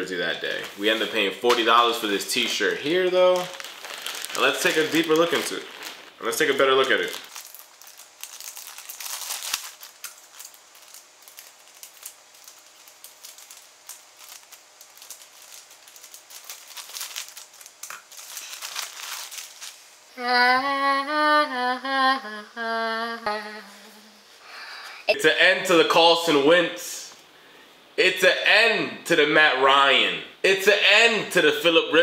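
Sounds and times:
plastic bag crinkling: 0:00.6 - 0:19.9.

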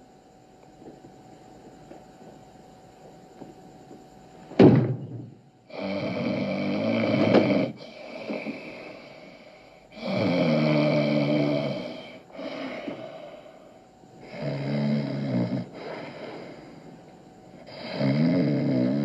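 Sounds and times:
sharp thump: 0:04.5 - 0:05.4
man snoring: 0:05.7 - 0:16.8, 0:17.6 - 0:19.0.

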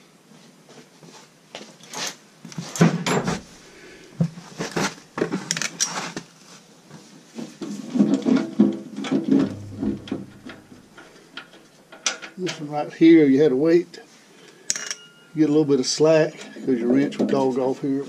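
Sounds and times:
wrench clinking on sheet metal: 0:14.7 - 0:15.3.

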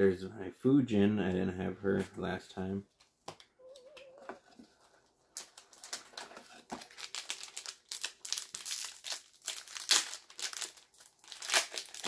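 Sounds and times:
foil pack crinkling and tearing: 0:05.3 - 0:12.0.

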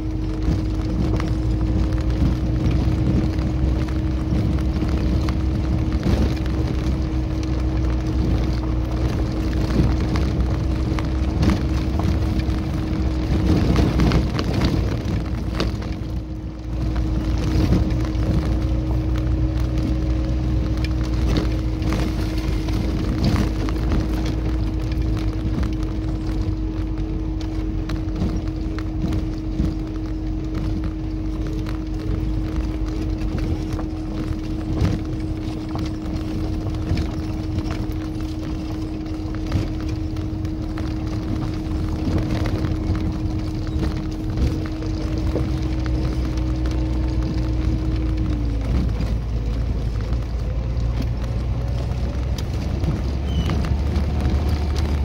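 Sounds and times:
vehicle body rattling and knocking: 0:00.0 - 0:55.0
vehicle engine running: 0:00.0 - 0:55.0.

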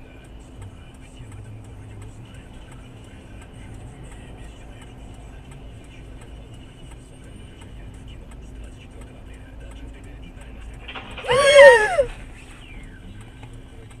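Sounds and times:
car engine and road noise: 0:00.0 - 0:14.0
light ticks: 0:00.2 - 0:11.0.

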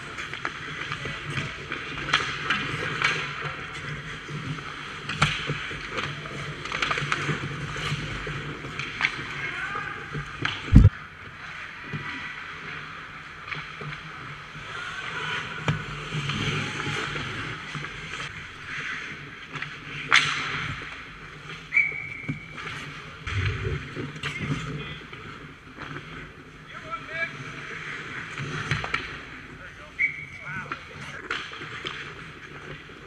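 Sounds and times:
hockey sticks and puck clacking: 0:00.0 - 0:33.0
skate blades scraping ice: 0:00.0 - 0:33.0
heavy thump: 0:10.7 - 0:10.9, 0:23.3 - 0:24.0.

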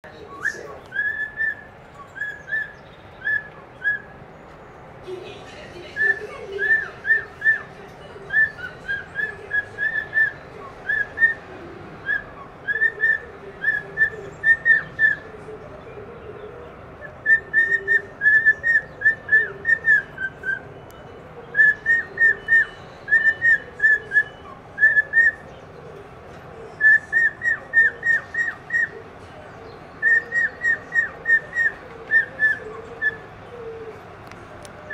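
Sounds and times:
cockatiel whistling: 0:00.4 - 0:04.1, 0:12.0 - 0:15.2, 0:17.0 - 0:25.4, 0:26.8 - 0:29.0, 0:30.0 - 0:33.3.

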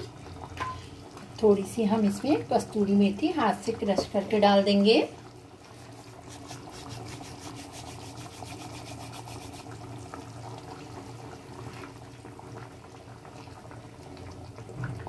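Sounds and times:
gravy bubbling: 0:04.6 - 0:15.0.

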